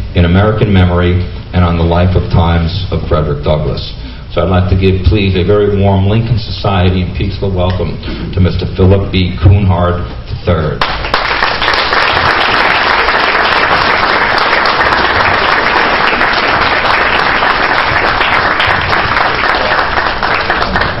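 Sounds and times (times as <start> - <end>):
audience applauding: 10.8 - 21.0.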